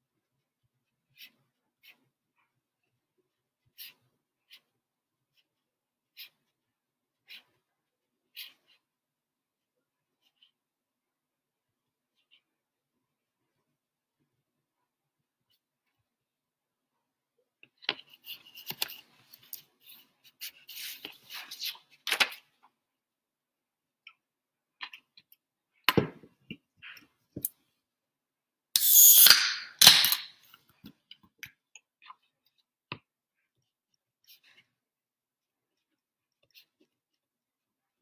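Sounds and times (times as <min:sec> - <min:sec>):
sharp click: 0:28.8 - 0:30.3.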